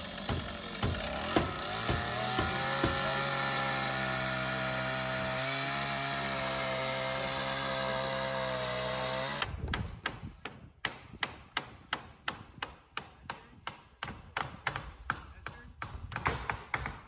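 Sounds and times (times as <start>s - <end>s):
motor running: 0.0s - 9.5s.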